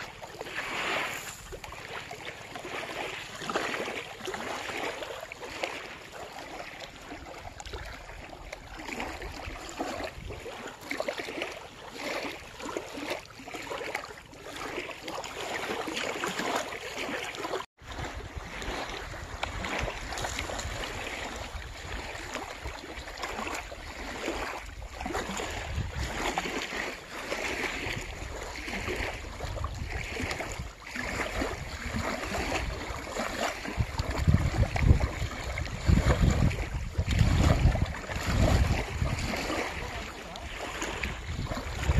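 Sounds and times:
small waves lapping: 0.0 - 41.9
wind buffeting microphone: 8.7 - 10.6, 17.8 - 22.8, 24.1 - 26.6, 27.7 - 41.9.

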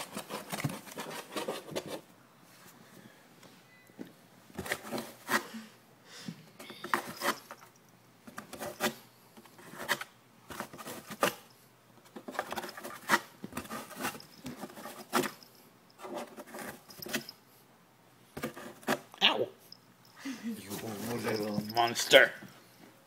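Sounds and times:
cat scratching cardboard: 0.0 - 2.1, 8.3 - 11.5, 12.1 - 15.4, 16.0 - 17.3.

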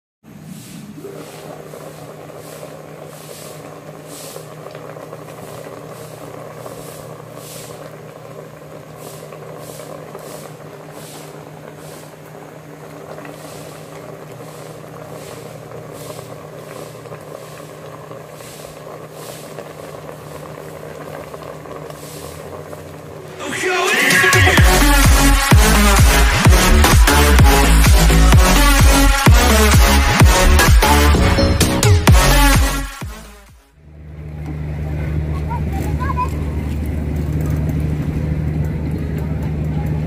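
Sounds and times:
pot simmering with soft hissing: 0.3 - 24.1.

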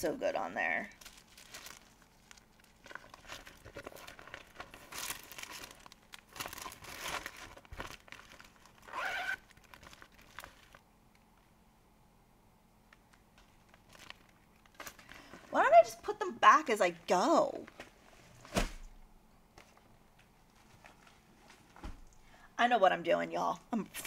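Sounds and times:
packaging and fabric rustling: 0.8 - 10.9, 12.9 - 15.6, 19.6 - 22.2.

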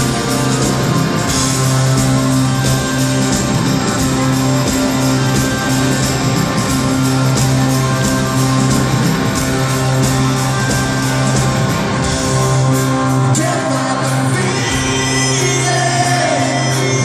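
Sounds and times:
live rock band playing: 0.0 - 17.0
person singing: 13.3 - 17.0.

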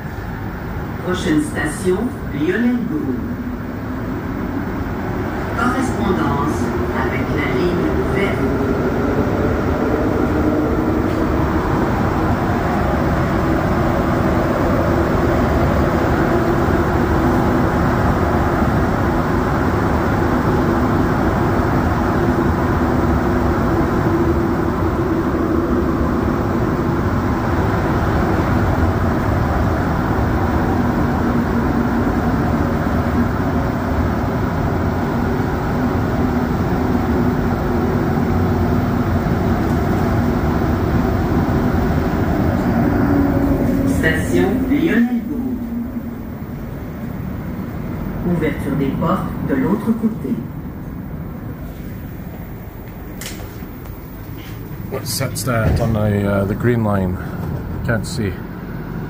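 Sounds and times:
metro train rumbling in tunnel: 0.0 - 59.0
low hum: 41.0 - 48.3.

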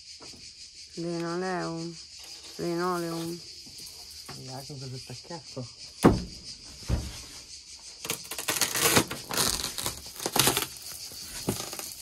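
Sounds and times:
linoleum cracking and tearing: 8.0 - 12.0.

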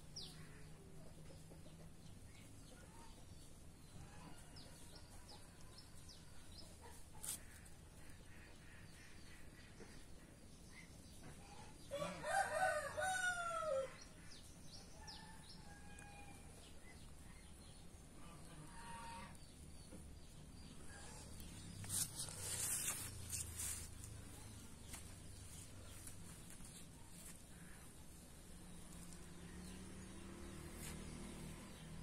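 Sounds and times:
rooster crowing: 11.9 - 14.0
rustling noise: 21.4 - 27.5.

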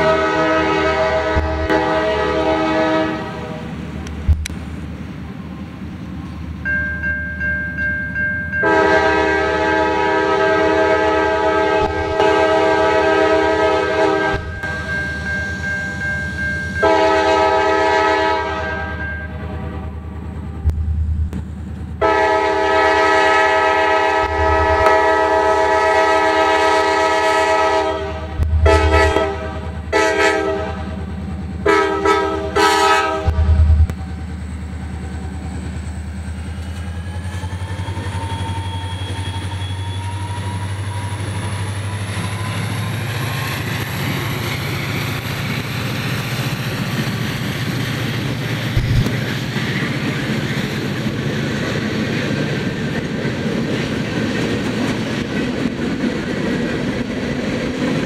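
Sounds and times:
locomotive air horn blasts: 0.0 - 3.8, 8.6 - 14.9, 16.8 - 20.0, 22.0 - 31.0, 31.6 - 33.9
diesel engines rumbling: 8.6 - 58.0.

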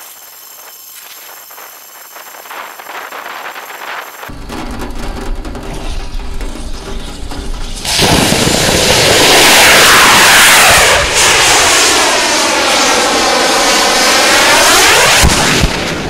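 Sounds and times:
rocket motor roaring: 4.3 - 16.0.

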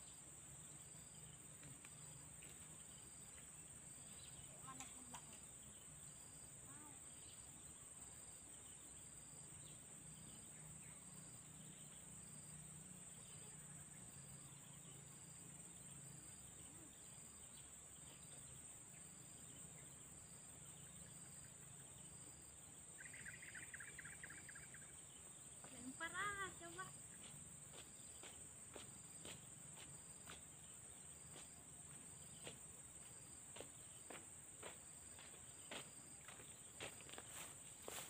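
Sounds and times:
insect chirping: 0.0 - 38.0
insects buzzing: 0.0 - 38.0
insect rattling call: 0.8 - 28.4.

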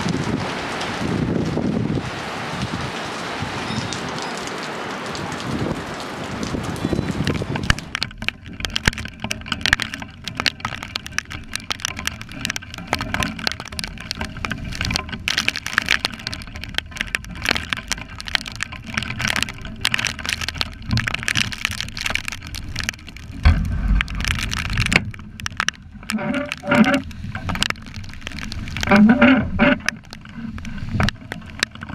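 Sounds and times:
rain tapping on camera housing: 0.0 - 31.9
wind rumbling on microphone: 0.0 - 31.9.

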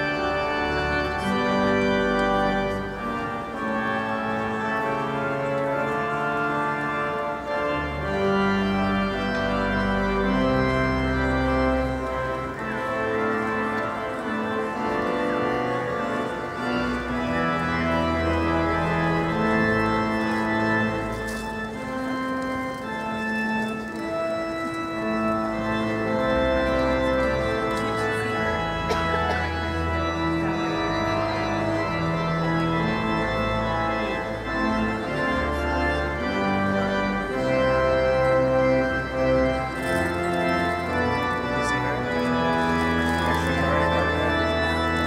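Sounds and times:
organ playing slow chords: 0.0 - 45.0.

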